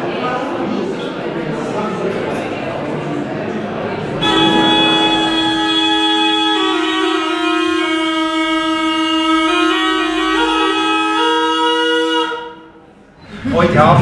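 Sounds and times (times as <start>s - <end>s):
reed pipe drone: 4.0s - 8.1s
reed pipe slow melody: 4.0s - 13.1s.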